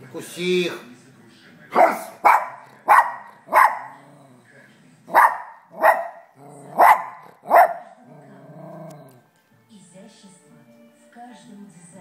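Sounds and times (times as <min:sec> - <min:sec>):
small dog barking sharply: 0:01.8 - 0:03.9, 0:05.1 - 0:06.2, 0:06.8 - 0:07.8
dog growling low: 0:03.9 - 0:04.5, 0:06.4 - 0:09.2.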